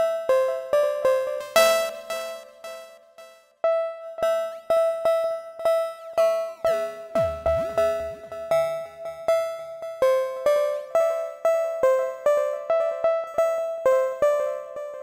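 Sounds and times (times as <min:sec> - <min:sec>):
synthesizer plucked arpeggio: 0:07.2 - 0:09.4.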